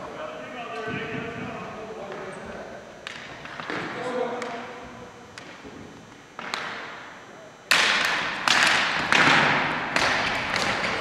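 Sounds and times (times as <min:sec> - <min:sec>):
echoing knocks on rink boards: 0:00.8 - 0:02.3, 0:03.0 - 0:05.8, 0:06.4 - 0:07.0, 0:07.7 - 0:11.0.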